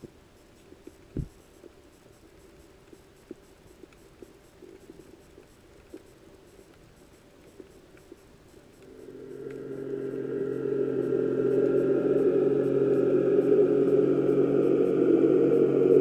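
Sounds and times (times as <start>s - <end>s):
sea hiss and clicks: 0.0s - 11.8s
motorboat engine droning underwater: 8.7s - 16.0s.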